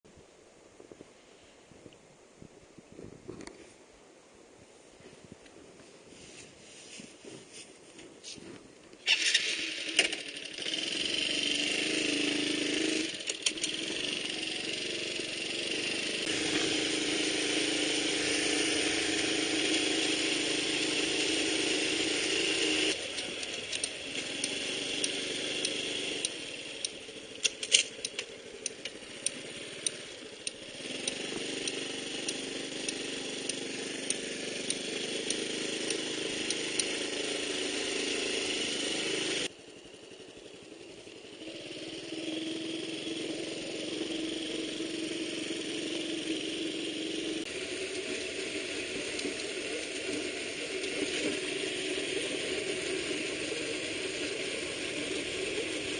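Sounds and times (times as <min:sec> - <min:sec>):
motorcycle engine running: 0:09.1 - 0:55.9
sharp rattling clicks: 0:12.2 - 0:15.0, 0:22.3 - 0:39.5.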